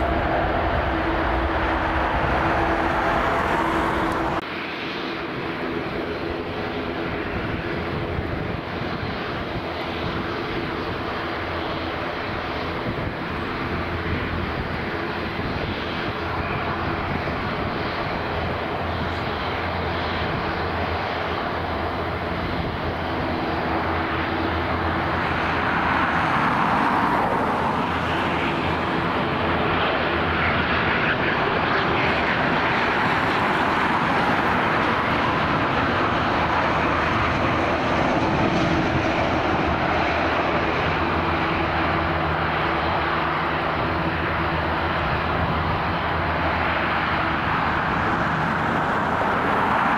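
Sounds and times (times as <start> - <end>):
jet engines roaring: 0.0 - 49.9.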